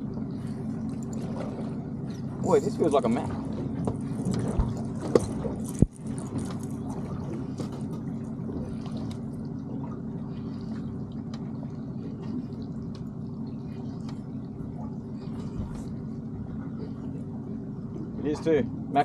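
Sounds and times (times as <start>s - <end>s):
steady low hum: 0.0s - 19.0s
water lapping against boat hull: 0.0s - 19.0s
light ticks: 11.2s - 11.5s.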